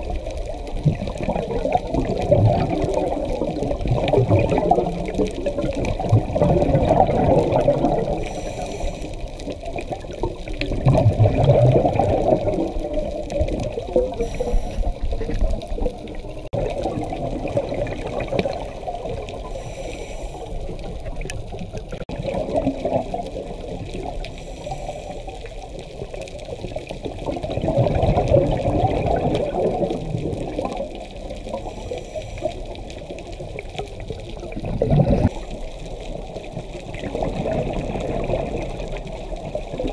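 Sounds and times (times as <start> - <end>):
exhaled bubbles rushing: 0.0 - 39.9
inhaled breath hiss: 8.1 - 9.4, 14.1 - 15.1, 19.4 - 20.9, 24.2 - 25.6, 31.6 - 33.1.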